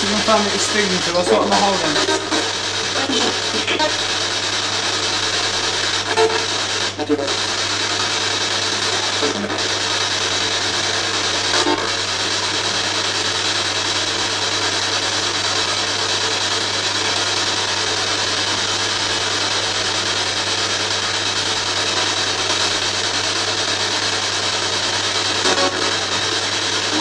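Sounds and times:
constant low hum: 0.0s - 8.1s
radio static hiss: 0.0s - 27.0s.

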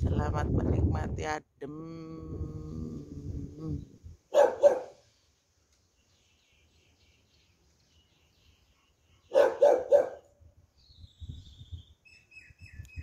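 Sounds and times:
dog barking: 4.3s - 5.0s, 9.3s - 10.3s
faint high bird chirps: 5.9s - 13.0s.

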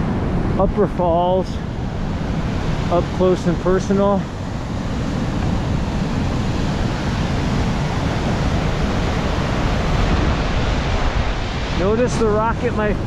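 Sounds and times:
waterfall roaring: 0.0s - 13.0s
wind buffeting microphone: 0.0s - 13.0s.

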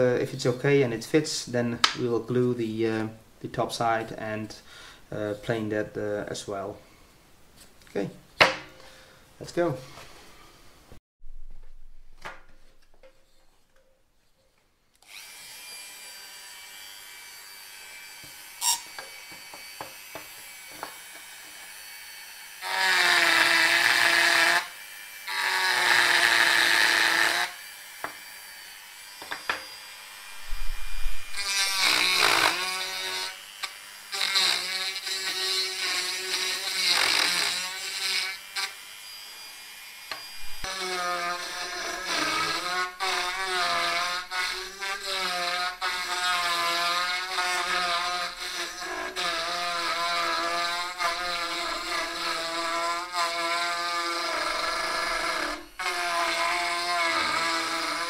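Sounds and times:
rotary tool whining: 15.0s - 45.2s
rotary tool grinding wood: 15.0s - 58.0s.

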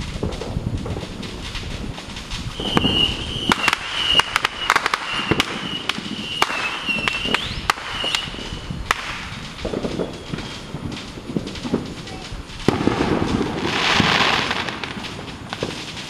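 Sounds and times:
fireworks cracking and popping: 0.0s - 16.0s
high wavering whistle: 2.5s - 8.7s.

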